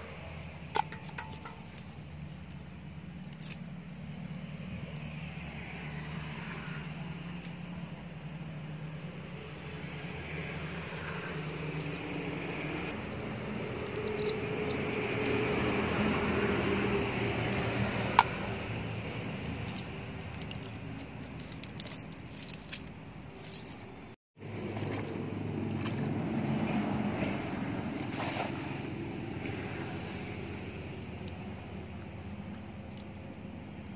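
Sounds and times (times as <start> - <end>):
low outdoor rumble: 0.0 - 33.9
moving water: 0.0 - 33.9
net clicking and rustling: 0.8 - 7.8, 10.8 - 12.3, 12.9 - 16.9, 19.1 - 24.2.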